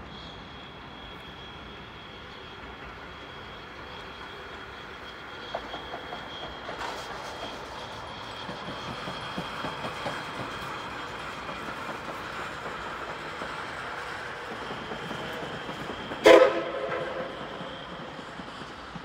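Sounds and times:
train running with rail clatter: 0.0s - 19.0s
steam whistle blast: 16.2s - 18.0s.

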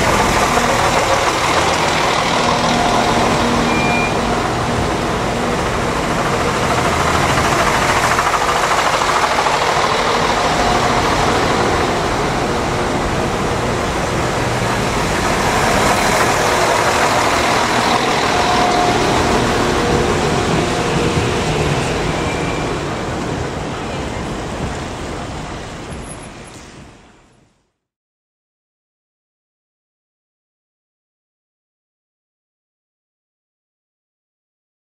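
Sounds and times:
train passing close by: 0.0s - 27.5s.

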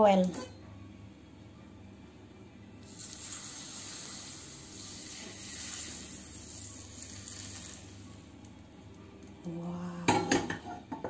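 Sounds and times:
hot oil sizzling: 2.8s - 8.3s.

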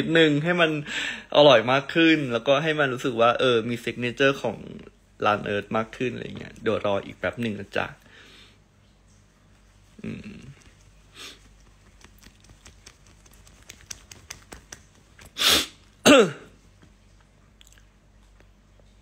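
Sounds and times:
man sneezing: 15.4s - 16.6s.

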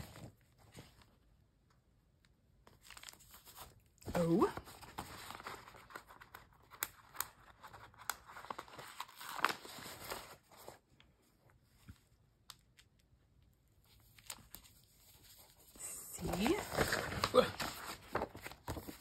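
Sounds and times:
stickers peeling and rustling: 13.8s - 19.0s.

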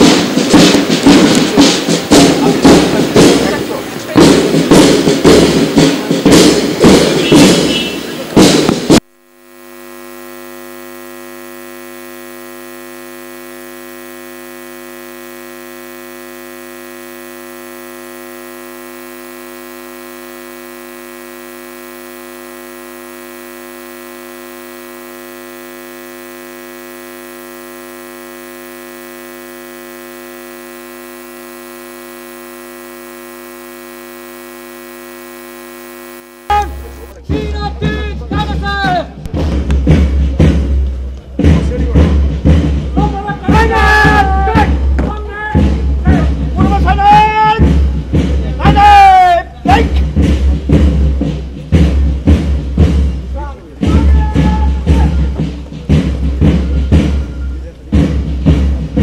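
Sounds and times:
electrical mains hum: 9.2s - 37.2s.

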